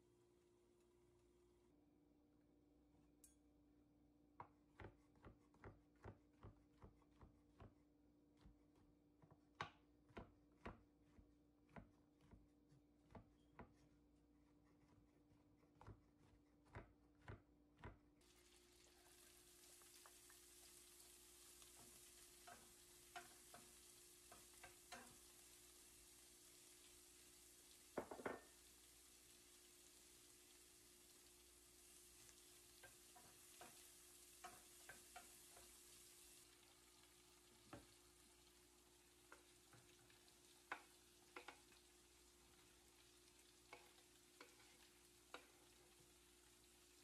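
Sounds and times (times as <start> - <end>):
onions sizzling in a pan: 18.2 - 47.0
wooden spatula clicking: 21.6 - 25.3, 32.8 - 35.7, 39.3 - 41.9, 43.7 - 46.0.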